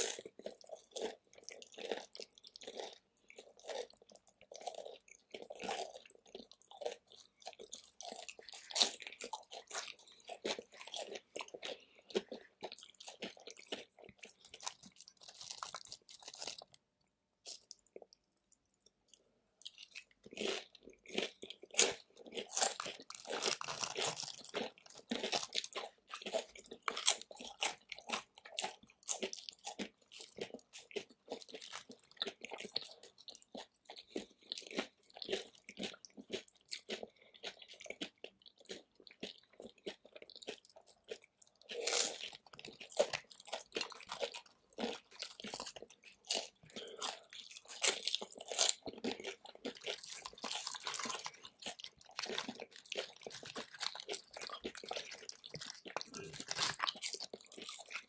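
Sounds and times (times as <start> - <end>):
crunching and chewing chips: 0.0 - 58.0.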